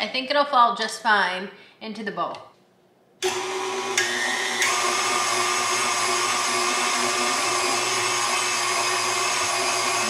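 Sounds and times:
stand mixer motor running: 3.2s - 10.0s.

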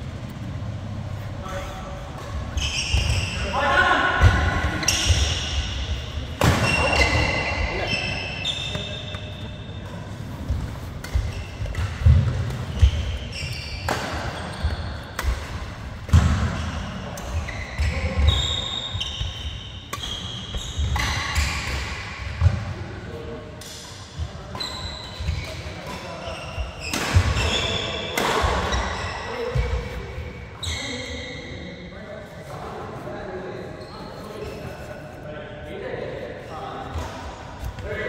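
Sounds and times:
shoes squeaking on court: 2.0s - 22.5s, 24.4s - 31.5s, 33.7s - 35.1s
rackets striking shuttlecock: 8.7s - 16.6s, 19.9s - 22.6s.

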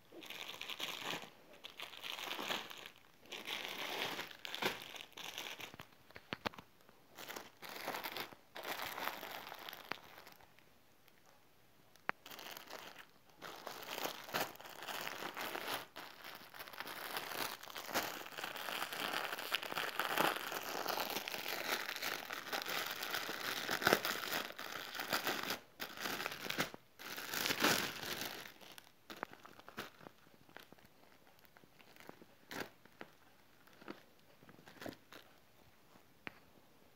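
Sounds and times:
plastic bags crinkling: 0.1s - 10.5s, 12.2s - 35.4s.

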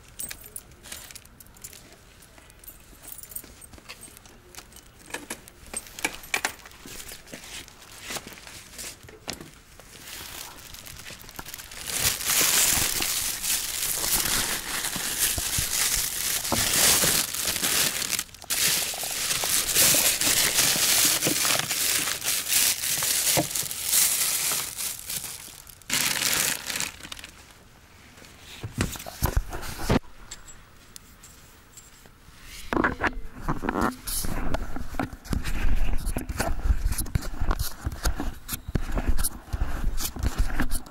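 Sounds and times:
handling noise: 0.1s - 27.4s
plastic bag crinkling: 4.0s - 27.6s.

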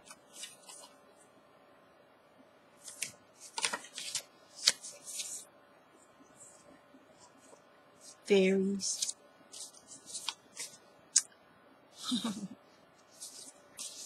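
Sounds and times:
paper cards rustling: 0.0s - 1.0s, 2.8s - 5.5s, 8.8s - 10.8s, 13.0s - 14.0s.

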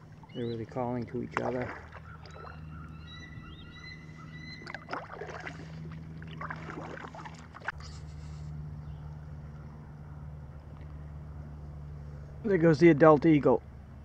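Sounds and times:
small water splashes: 0.0s - 2.7s, 4.5s - 7.8s
eagles calling: 0.0s - 5.6s.

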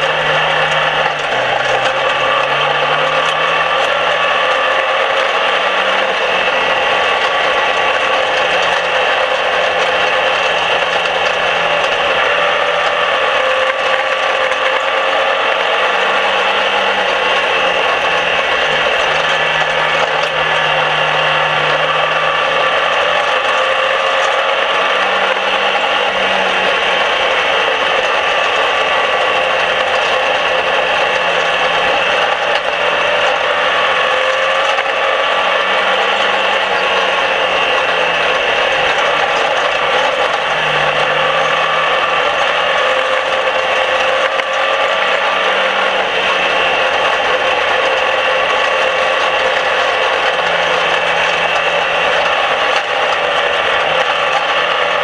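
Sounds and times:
race car engine running hard: 0.0s - 55.0s.

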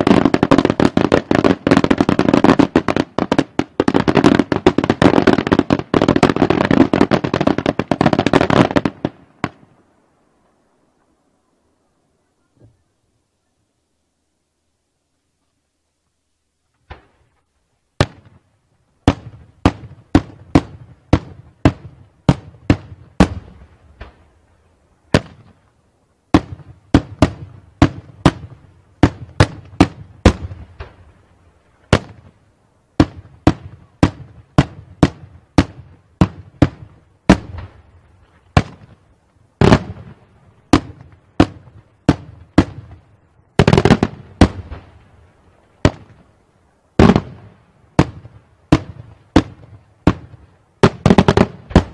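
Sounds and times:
fireworks bangs: 0.0s - 9.9s, 18.0s - 18.4s, 19.0s - 24.4s, 25.1s - 25.6s, 26.3s - 31.2s, 31.8s - 32.4s, 33.0s - 46.3s, 47.0s - 51.9s.

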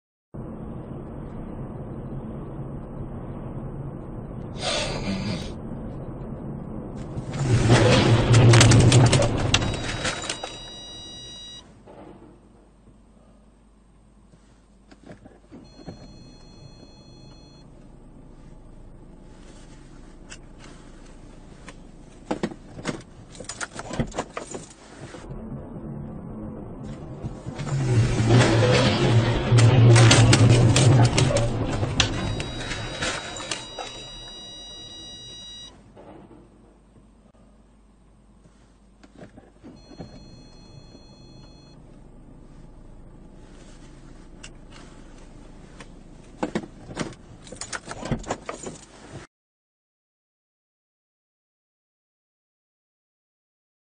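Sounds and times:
low hum inside car: 0.4s - 7.4s, 8.6s - 28.4s, 29.2s - 35.9s, 36.5s - 49.2s
low vehicle rumble: 0.4s - 48.2s
car driving along road: 24.8s - 34.4s, 41.8s - 48.2s.

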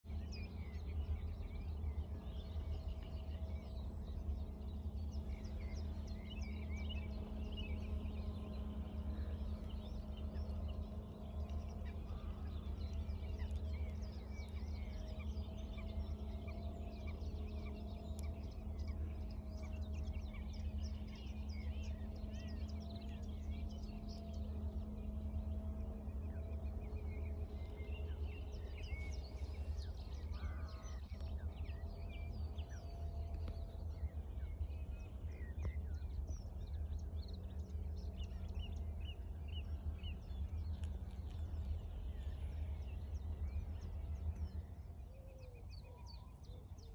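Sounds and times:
faint hum: 0.0s - 46.9s
low rumble: 0.0s - 46.9s
birds chirping and calling: 26.0s - 46.9s.

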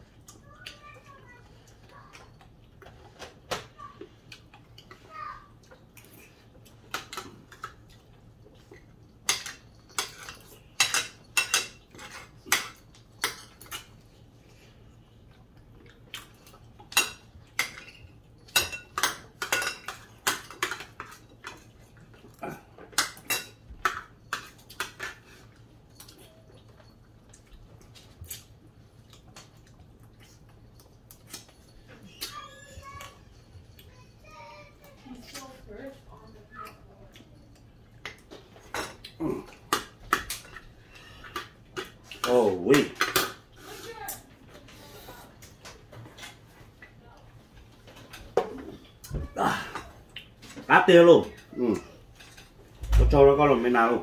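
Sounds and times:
cutlery clinking against plates: 5.7s - 14.0s, 16.1s - 28.5s, 36.6s - 43.5s, 51.3s - 52.6s.

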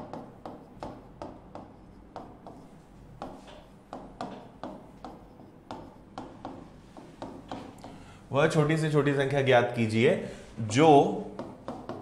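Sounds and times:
pen tapping and scratching on board: 0.0s - 8.0s, 11.4s - 12.0s.

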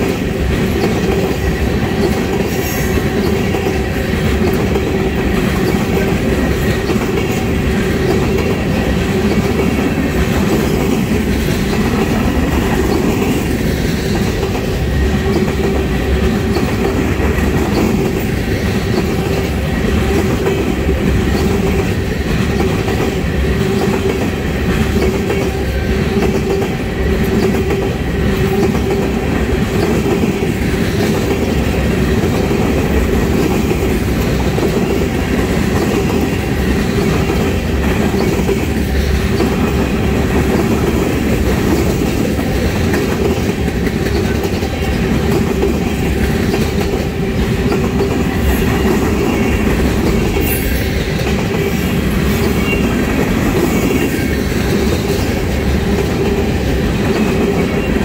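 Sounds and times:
freight train rumbling past: 0.0s - 58.0s
steel wheels clattering on rails: 0.0s - 58.0s.

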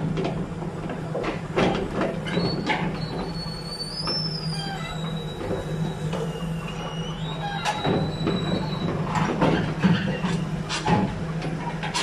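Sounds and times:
high metallic squeal: 2.4s - 8.9s.

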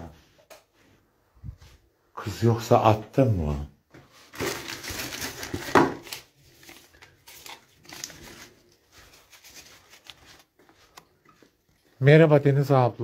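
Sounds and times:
paper rustling and crinkling: 4.1s - 12.0s.

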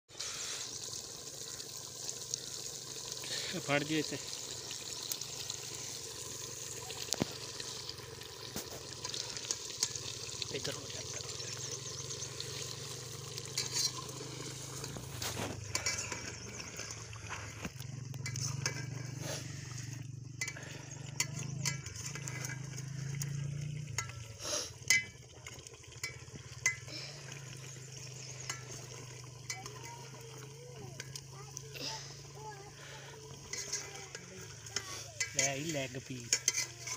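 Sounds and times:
gravy sizzling and simmering: 0.1s - 36.9s
ladle scraping a steel pot: 7.1s - 30.4s, 32.2s - 36.9s.

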